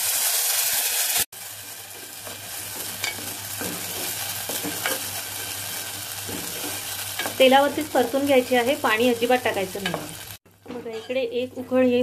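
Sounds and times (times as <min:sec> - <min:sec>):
paste sizzling in hot oil: 0:00.0 - 0:10.5
wooden spatula scraping pan: 0:01.9 - 0:07.5, 0:09.7 - 0:11.9.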